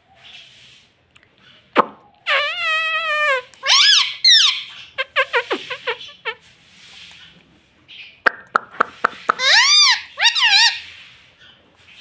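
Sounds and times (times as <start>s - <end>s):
parakeet calling: 2.2s - 6.4s, 8.9s - 11.0s.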